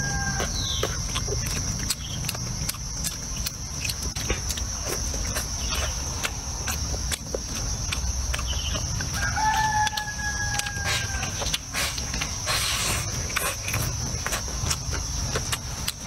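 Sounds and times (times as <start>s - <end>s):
rooster crowing: 0.0s - 0.8s, 9.1s - 11.6s.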